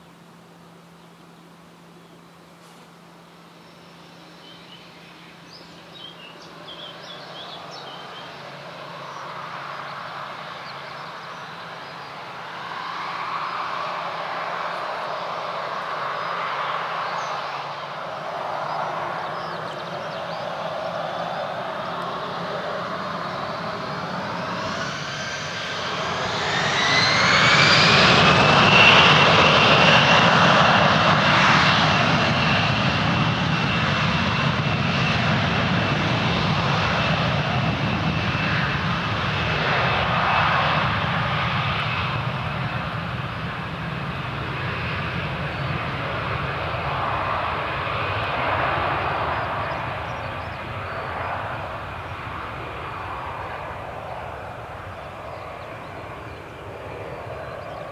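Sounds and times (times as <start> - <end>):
rising engine whine: 0.0 - 57.9
jet engines spooling up: 7.7 - 57.9.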